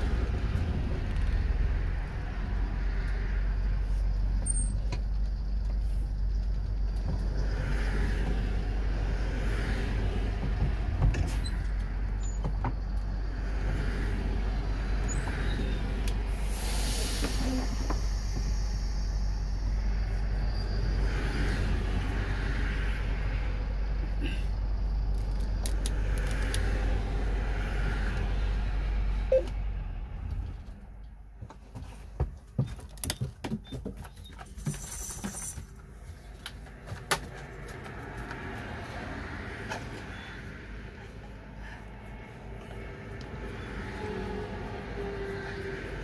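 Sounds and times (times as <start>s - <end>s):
traffic swishing past: 0.0s - 32.1s, 34.6s - 46.0s.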